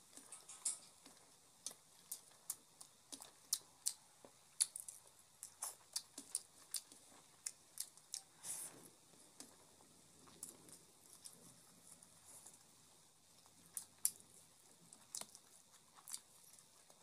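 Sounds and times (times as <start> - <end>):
chewing: 0.0 - 17.0.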